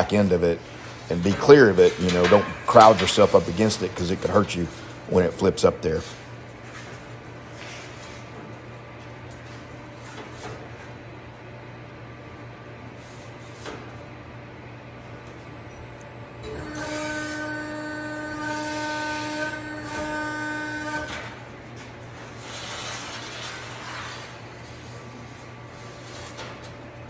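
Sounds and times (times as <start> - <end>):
low steady hum: 14.4 - 26.4
press brake drive whining: 15.4 - 21.4.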